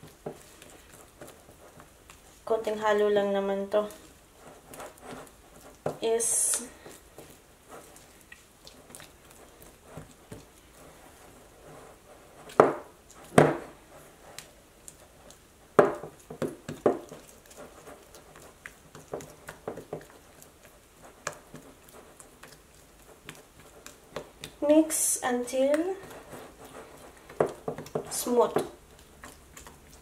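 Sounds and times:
spatula stirring thick dough: 0.0s - 30.0s.

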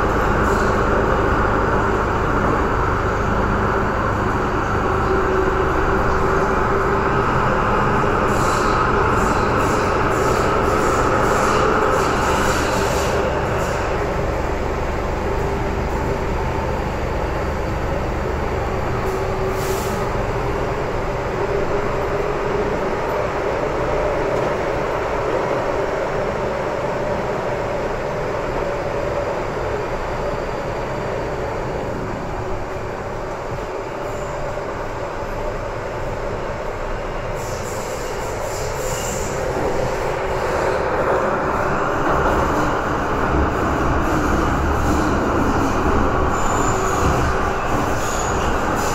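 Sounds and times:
train wheels rumbling on rail: 0.0s - 48.9s.

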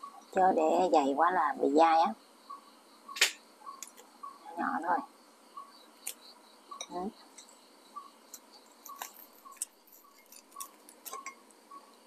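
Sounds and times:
dried meat being torn apart: 8.8s - 11.3s.

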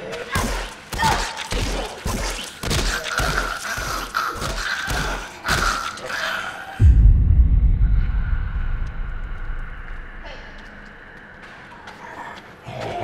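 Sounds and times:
fight thuds and blows: 0.3s - 3.5s.

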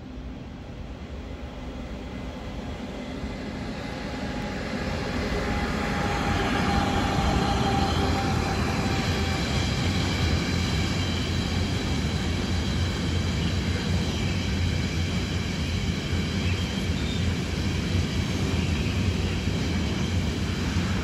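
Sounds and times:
freight train rolling past: 0.1s - 21.0s.

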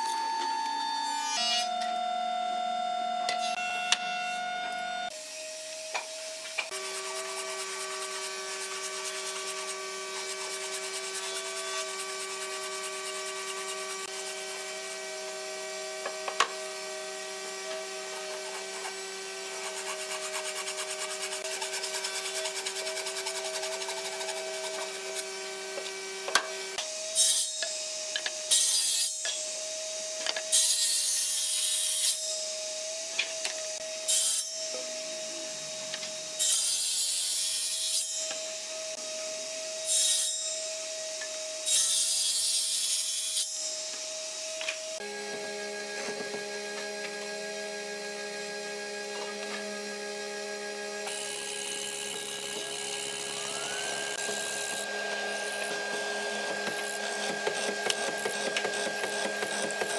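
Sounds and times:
tools rasping on wood: 18.2s - 25.0s, 51.1s - 59.9s
bursts of wood cutting: 51.0s - 59.9s.

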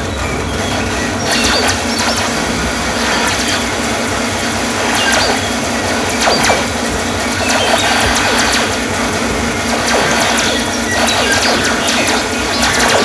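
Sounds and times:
squealing falling glides: 0.0s - 8.8s
dense wash of noise: 0.0s - 13.0s.

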